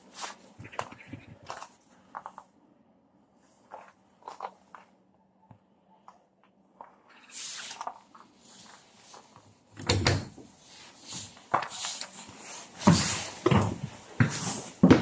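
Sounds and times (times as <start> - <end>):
footsteps on bus floor: 7.7 - 9.7, 10.3 - 15.0.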